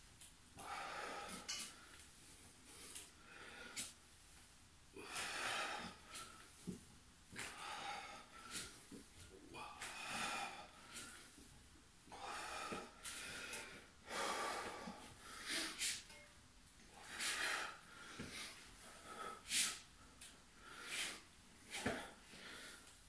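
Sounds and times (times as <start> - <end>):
man breathing hard: 0.6 - 2.0, 4.9 - 6.7, 7.4 - 8.9, 9.5 - 11.4, 12.1 - 16.2, 16.9 - 23.0.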